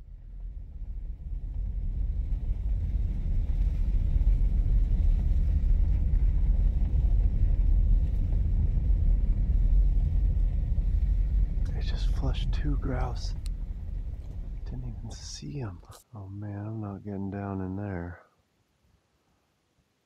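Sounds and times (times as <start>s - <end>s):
vehicle driving on gravel road: 0.3s - 15.8s.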